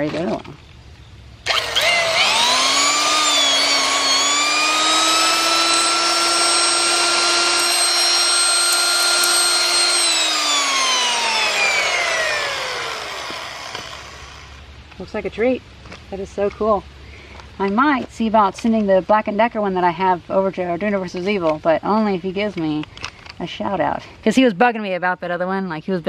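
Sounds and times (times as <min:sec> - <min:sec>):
electric drill motor whining: 0:01.4 - 0:14.6.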